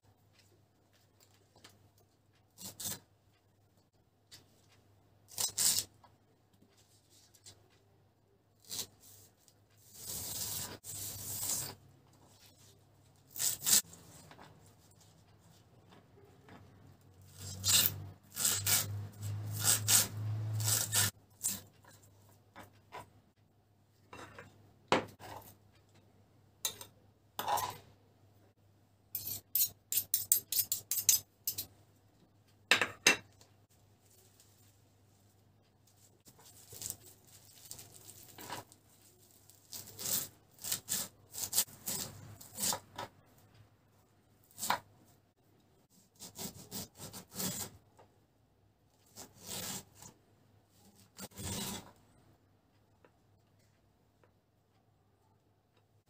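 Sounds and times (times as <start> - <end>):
knife cutting lemon: 13.3 - 14.0, 17.2 - 21.7, 39.4 - 43.1.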